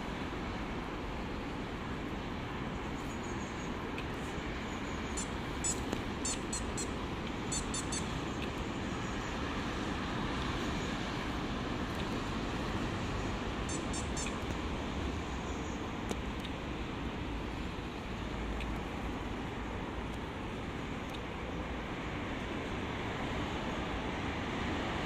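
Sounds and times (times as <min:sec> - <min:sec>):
busy road traffic: 0:00.0 - 0:25.0.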